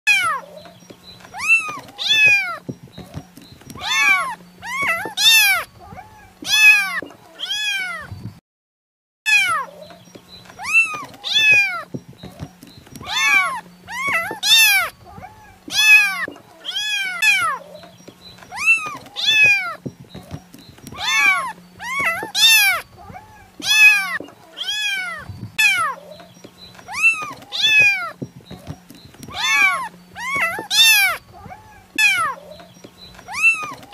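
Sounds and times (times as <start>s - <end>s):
kitten meowing: 1.4s - 2.6s, 3.8s - 8.1s, 9.3s - 9.8s, 10.6s - 12.0s, 13.0s - 17.7s, 18.5s - 19.8s, 20.9s - 26.2s, 26.9s - 28.2s, 29.3s - 32.6s, 33.3s - 33.9s.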